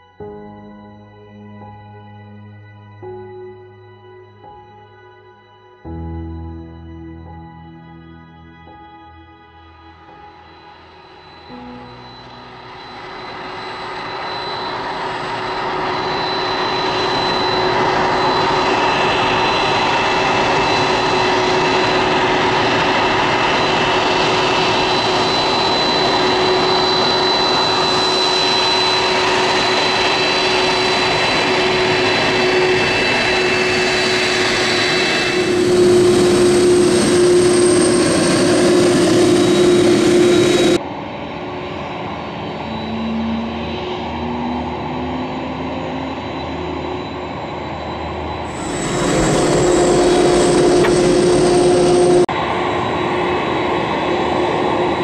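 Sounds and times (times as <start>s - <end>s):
jet engines whining: 10.5s - 55.0s
jet engine rushing noise: 11.5s - 55.0s.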